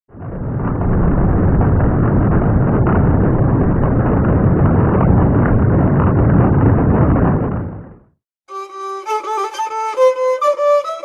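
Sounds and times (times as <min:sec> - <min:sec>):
heavy rain: 0:00.1 - 0:05.2.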